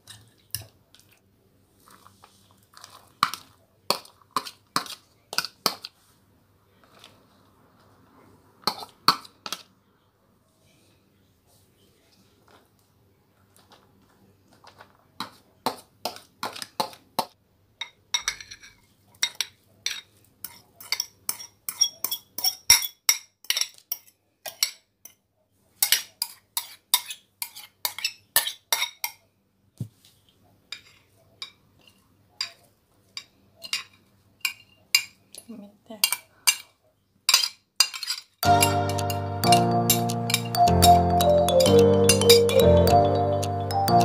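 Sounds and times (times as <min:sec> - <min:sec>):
spoon clinking against bowls: 0:17.8 - 0:25.2, 0:33.2 - 0:35.2, 0:37.3 - 0:44.0.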